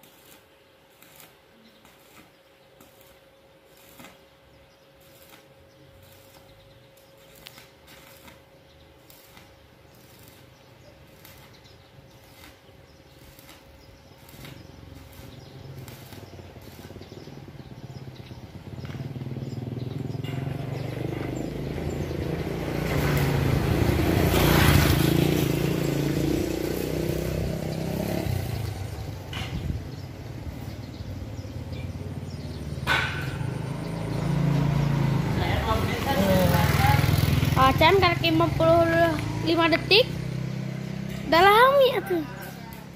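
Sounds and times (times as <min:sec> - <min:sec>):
vehicle engine passing by: 0:14.3 - 0:42.9.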